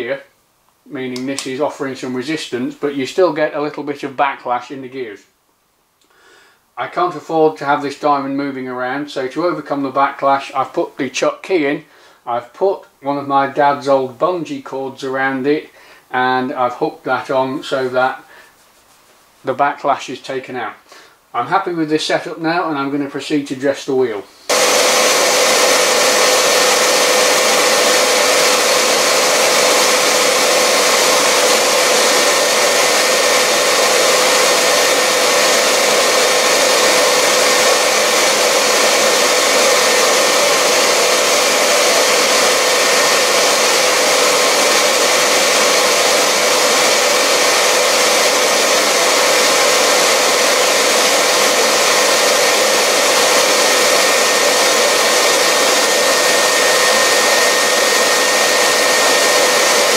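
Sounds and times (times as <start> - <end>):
vacuum cleaner running: 24.2 - 59.9
grinder motor whine: 24.5 - 59.9.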